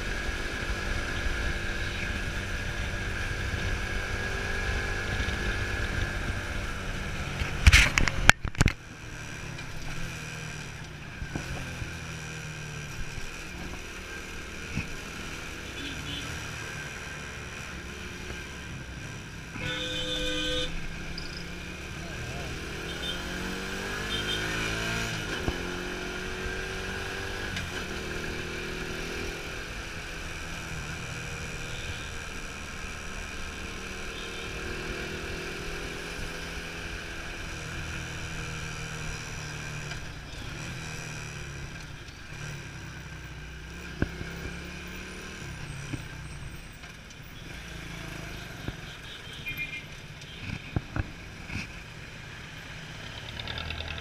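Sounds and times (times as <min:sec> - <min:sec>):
motorcycle engine running: 0:47.4 - 0:54.0.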